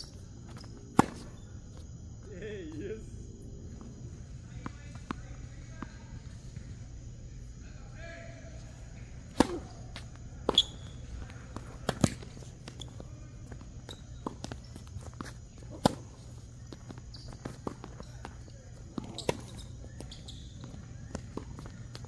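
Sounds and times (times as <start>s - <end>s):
tennis ball bouncing on court: 0.5s - 1.4s, 9.3s - 22.0s
tennis ball struck by racket: 0.9s - 1.3s, 9.3s - 10.7s, 11.7s - 12.8s, 15.7s - 16.0s.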